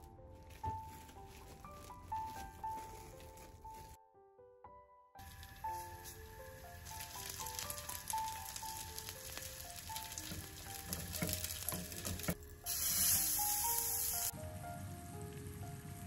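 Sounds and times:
food sizzling in frying pan: 0:05.2 - 0:14.4
wooden spatula knocking and scraping: 0:10.0 - 0:12.4.

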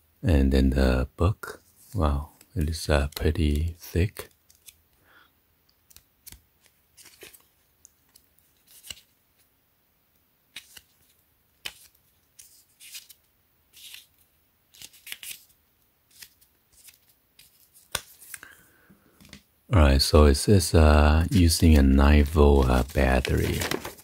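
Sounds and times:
book pages being turned: 0:04.3 - 0:04.8, 0:05.8 - 0:09.2, 0:10.5 - 0:18.5, 0:21.0 - 0:24.0.

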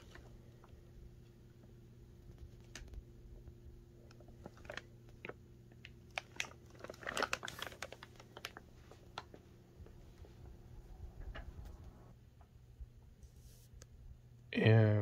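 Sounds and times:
plastic bag crinkling: 0:04.1 - 0:09.4.

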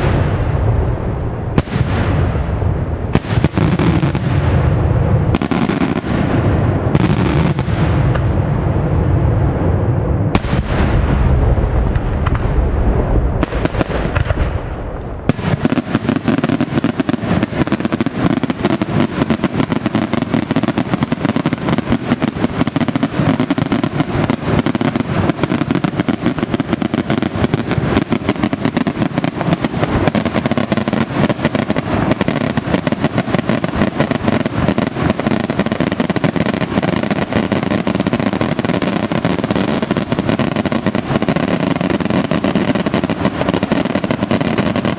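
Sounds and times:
fireworks booming: 0:00.0 - 0:44.9
fireworks crackling: 0:00.0 - 0:44.9.

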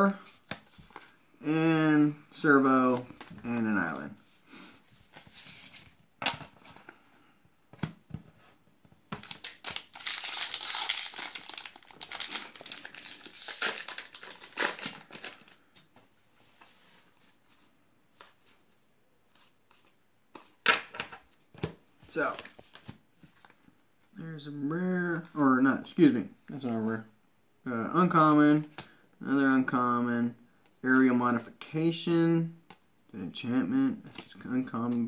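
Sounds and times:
foil wrapper tearing and crinkling: 0:09.2 - 0:15.5.

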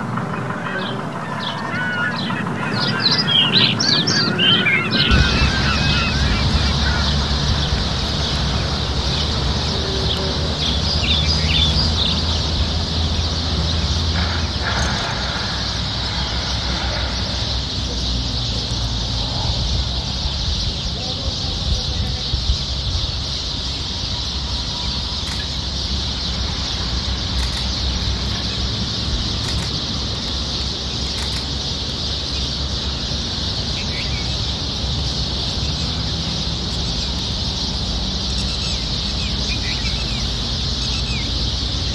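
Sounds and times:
low hum: 0:00.0 - 0:19.7
birds calling: 0:00.0 - 0:41.9.

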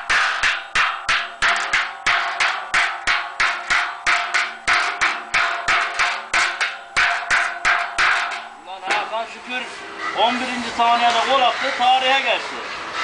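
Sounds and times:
mallet beating ringing sheet metal: 0:00.0 - 0:09.4.

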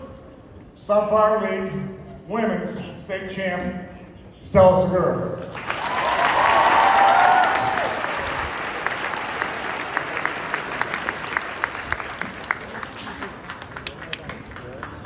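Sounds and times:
close hands clapping: 0:05.5 - 0:15.0
crowd applauding: 0:05.5 - 0:15.0.

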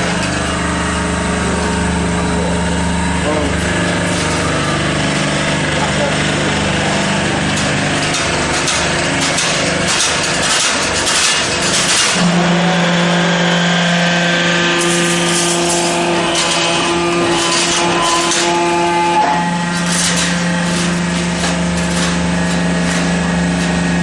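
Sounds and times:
hydraulic power unit humming: 0:00.0 - 0:24.0
metallic rattling of wire: 0:06.7 - 0:12.3, 0:14.8 - 0:24.0.

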